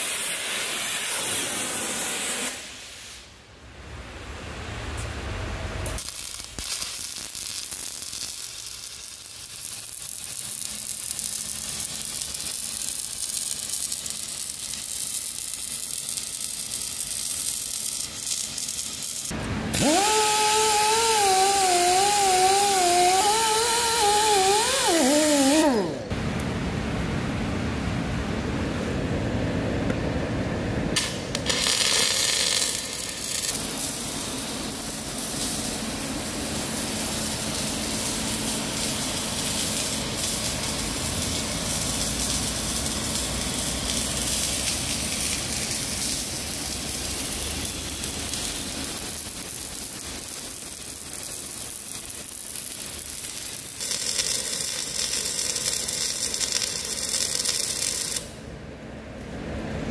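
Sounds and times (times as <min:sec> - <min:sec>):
welding arc crackling and hissing: 0:00.0 - 0:03.5, 0:05.8 - 0:26.2, 0:31.0 - 0:58.5.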